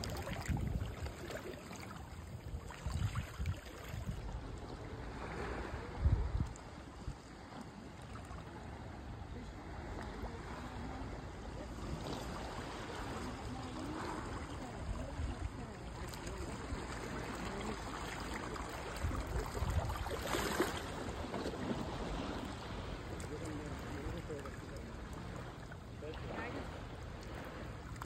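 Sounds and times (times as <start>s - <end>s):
seawater washing against rocks: 0.0s - 8.8s, 9.4s - 28.0s.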